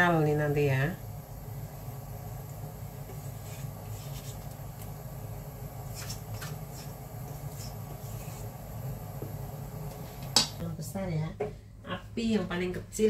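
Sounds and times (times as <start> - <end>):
low steady hum: 0.0 - 13.0
spatula scraping a steel bowl: 5.9 - 8.6.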